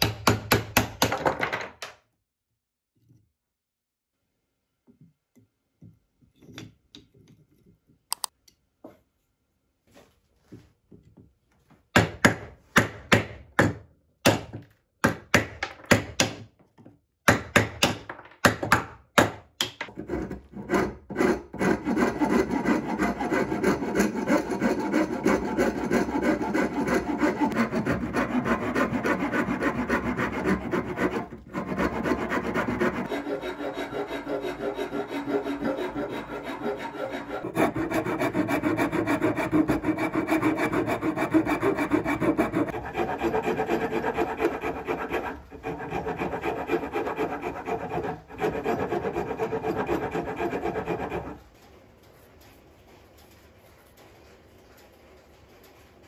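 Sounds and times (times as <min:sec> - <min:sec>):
hand tool scraping wood: 0:19.9 - 0:51.4.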